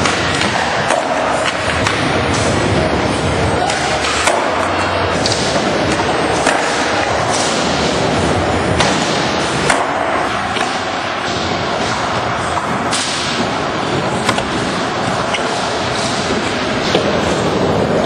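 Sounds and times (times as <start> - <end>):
skateboard clacks: 3.6 - 7.8.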